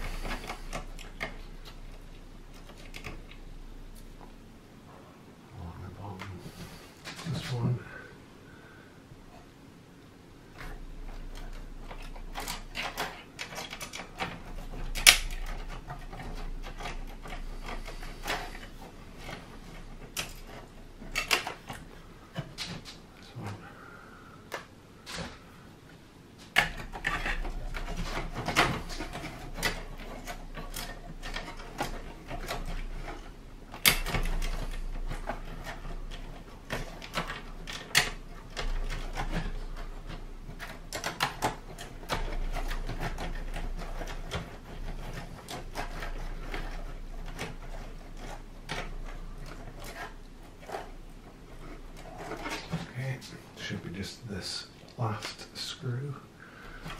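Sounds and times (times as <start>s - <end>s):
faint low hum: 0.0s - 56.9s.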